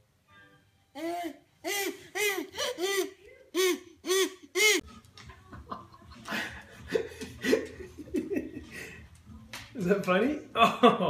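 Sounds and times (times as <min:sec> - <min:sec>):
toy whistle hoots: 0:01.6 - 0:04.8.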